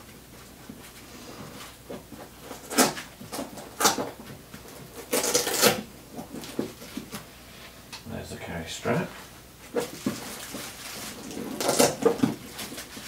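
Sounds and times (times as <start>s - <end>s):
rustling and scraping of packaging: 0.0s - 7.7s, 9.1s - 13.0s.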